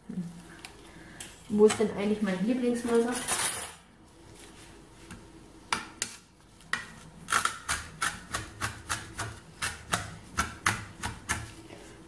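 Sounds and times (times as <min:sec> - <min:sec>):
knife chopping on plastic board: 0:05.7 - 0:11.5.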